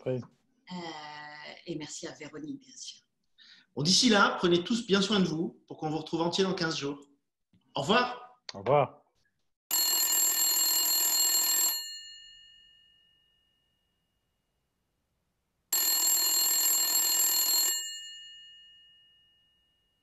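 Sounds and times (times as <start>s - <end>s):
telephone ringing: 9.7s - 13.1s, 15.7s - 19.4s.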